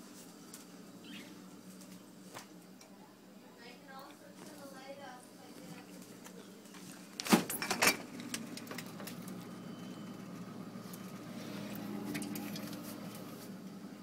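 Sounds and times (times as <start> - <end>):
faint clicks and rustles: 3.9 - 13.6.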